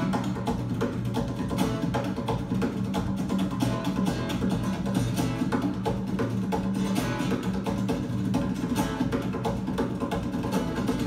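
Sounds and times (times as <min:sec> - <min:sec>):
bass line: 0:00.0 - 0:07.8
acoustic guitar duet: 0:00.0 - 0:11.0.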